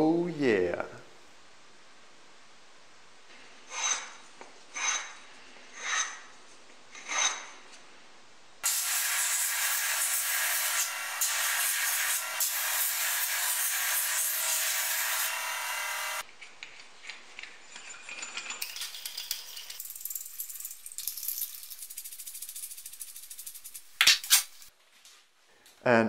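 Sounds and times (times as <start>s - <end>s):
belt grinder sanding wood: 8.6s - 16.2s.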